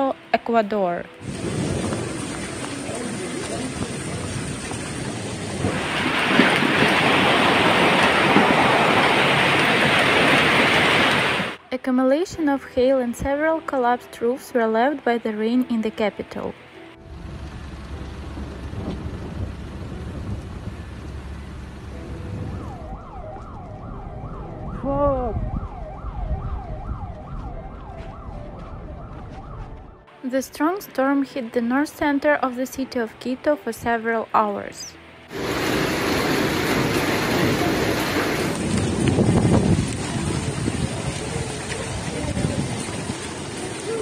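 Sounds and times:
wind buffeting microphone: 1.2s - 11.6s, 17.3s - 30.0s, 35.4s - 44.0s
hail clattering on pavement: 1.3s - 11.5s, 35.3s - 44.0s
emergency vehicle siren: 20.8s - 30.1s
rising and falling tone: 21.9s - 30.1s.

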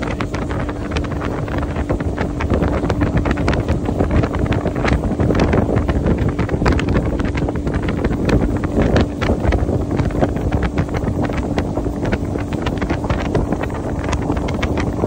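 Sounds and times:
boat engine hum: 0.0s - 15.0s
wind buffeting microphone: 0.0s - 15.0s.

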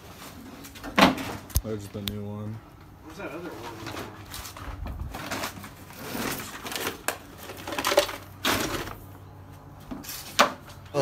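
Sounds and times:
rustling in a bag: 3.4s - 9.0s.

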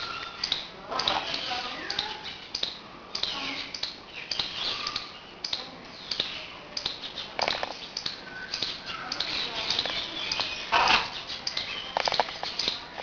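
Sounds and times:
macaw chirping: 0.0s - 5.2s, 6.0s - 12.8s
sharp clicks: 0.2s - 13.0s.

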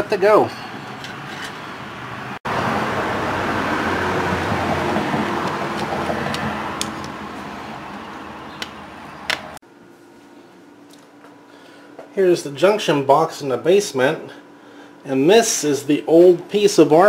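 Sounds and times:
car passing: 1.8s - 9.6s.

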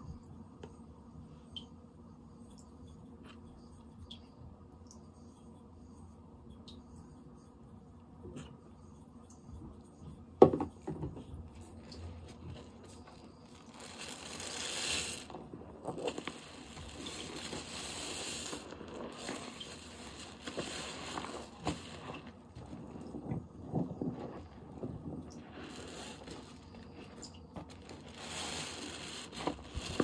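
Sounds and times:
hissing crackling noise: 11.8s - 30.0s.

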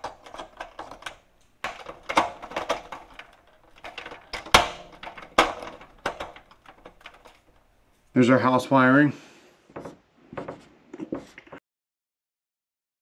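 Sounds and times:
plastic clicks and knocks: 0.0s - 7.7s.

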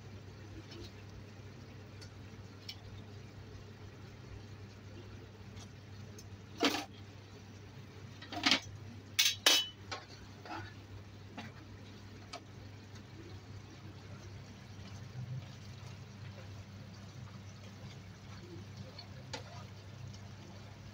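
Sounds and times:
dough bubbling in oil: 0.0s - 20.9s
metal tongs clanking on pan: 8.3s - 10.1s.

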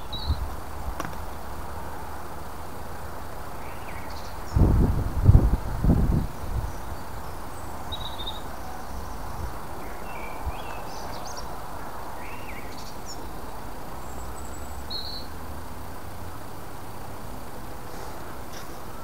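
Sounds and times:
small birds chirping: 0.0s - 1.6s, 3.4s - 4.7s, 6.0s - 15.4s.

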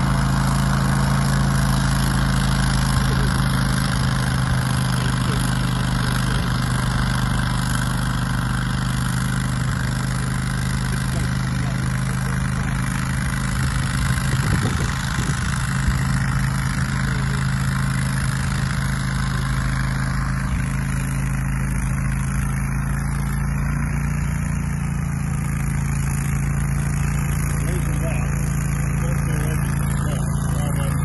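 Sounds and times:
mower engine droning: 0.0s - 31.0s.

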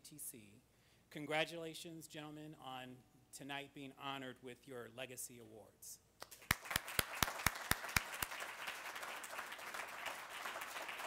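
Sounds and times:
audience applauding: 6.2s - 11.0s
loud close hand claps: 6.2s - 11.0s.

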